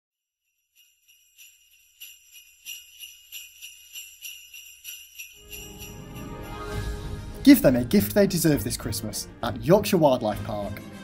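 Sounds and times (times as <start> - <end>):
jingle bells shaking: 0.4 - 9.2.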